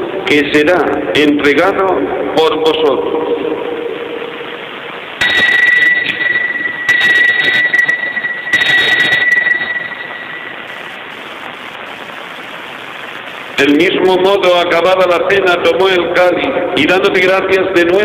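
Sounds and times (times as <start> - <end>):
bell ringing: 5.2 - 10.9.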